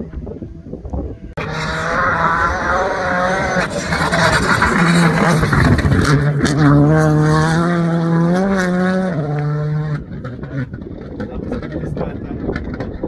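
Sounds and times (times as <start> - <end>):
rally car engine revving high: 0.0 - 13.0.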